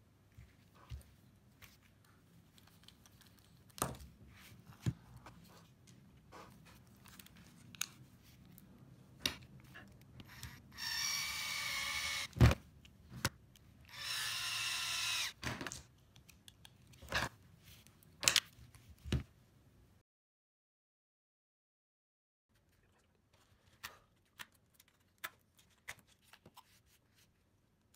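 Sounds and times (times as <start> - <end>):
small electric motor whirring: 10.2 - 12.4, 13.9 - 15.4.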